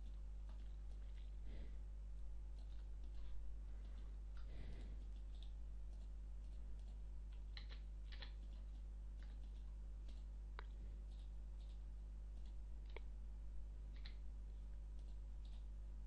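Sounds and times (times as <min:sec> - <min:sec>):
low electrical hum: 0:00.0 - 0:16.0
mouse and keyboard clicks: 0:05.2 - 0:11.8, 0:13.9 - 0:14.2.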